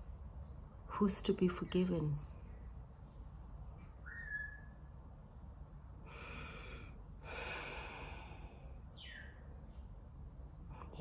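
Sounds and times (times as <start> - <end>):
woman breathing: 6.0 - 8.9.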